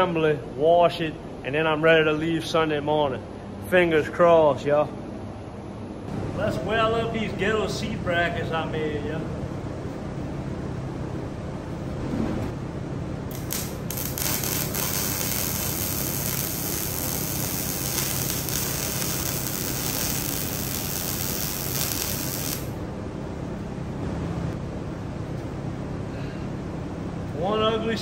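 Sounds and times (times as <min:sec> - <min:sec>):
steady low hum: 0:00.0 - 0:28.0
welder arc crackling and hissing: 0:13.3 - 0:22.8.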